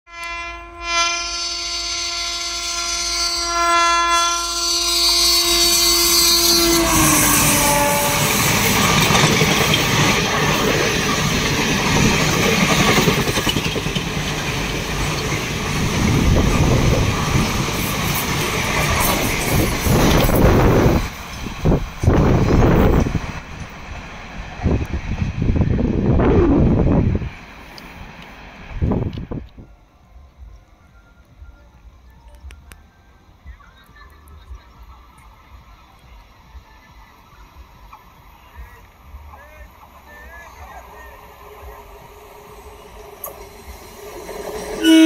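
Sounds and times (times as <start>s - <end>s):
locomotive horn: 0.1s - 9.2s, 44.7s - 45.0s
train coaches rumbling past: 0.1s - 45.0s.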